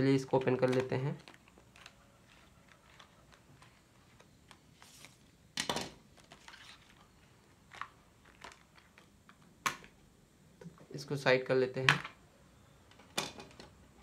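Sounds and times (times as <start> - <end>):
plastic packaging crinkling: 0.0 - 5.4, 6.1 - 9.5
loud plastic crackle: 0.2 - 4.9.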